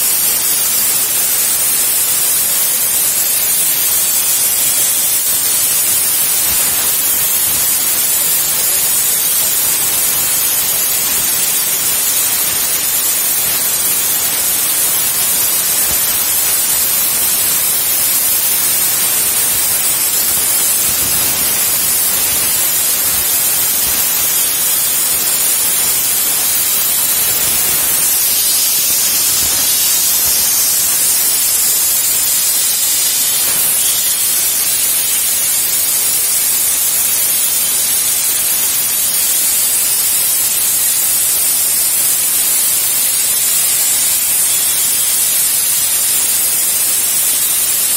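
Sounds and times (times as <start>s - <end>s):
plasma cutter hissing: 0.0s - 47.9s.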